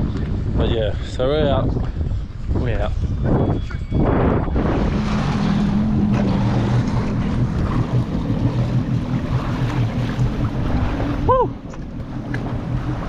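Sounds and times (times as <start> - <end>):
water noise: 0.0 - 13.0
wind buffeting microphone: 0.0 - 13.0
jet ski engine running: 3.8 - 13.0.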